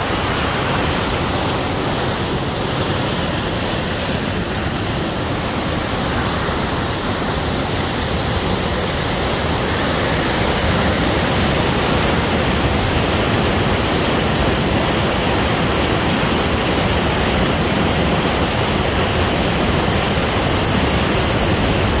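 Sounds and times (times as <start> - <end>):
river rushing over dam: 0.0 - 22.0.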